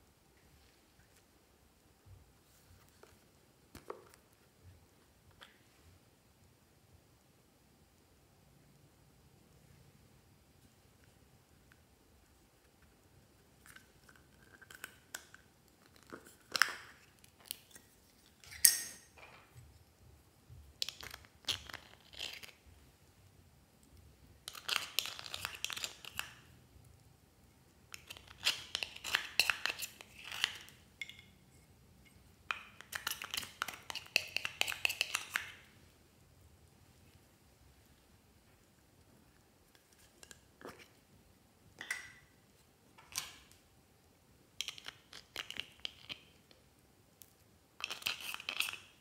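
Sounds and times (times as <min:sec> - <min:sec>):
metal pick scraping eyeshadow: 0:28.0 - 0:31.4, 0:47.8 - 0:48.9.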